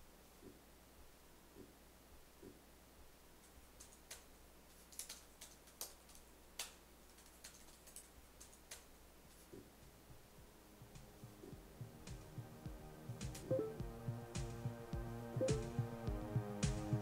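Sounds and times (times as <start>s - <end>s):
typing on computer keyboard: 4.9s - 8.9s.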